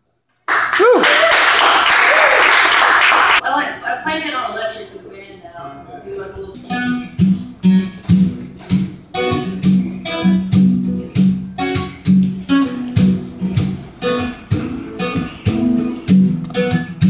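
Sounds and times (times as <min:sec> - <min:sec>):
acoustic guitar strumming: 0:06.5 - 0:17.0.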